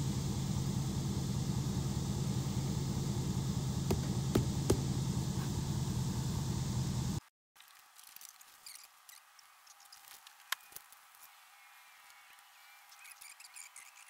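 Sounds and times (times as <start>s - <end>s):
engine idling: 0.0s - 7.2s.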